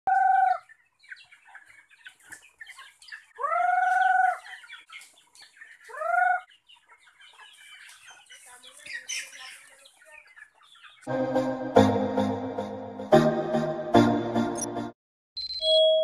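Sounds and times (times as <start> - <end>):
chickens clucking and chicks peeping: 0.1 - 11.1.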